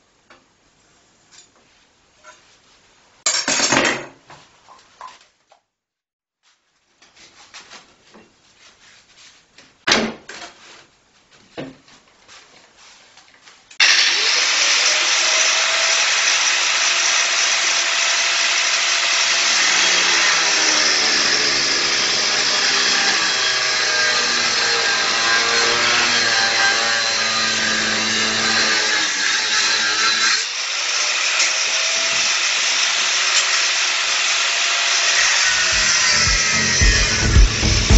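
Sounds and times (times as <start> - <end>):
angle grinder cutting steel: 13.8 - 37.9.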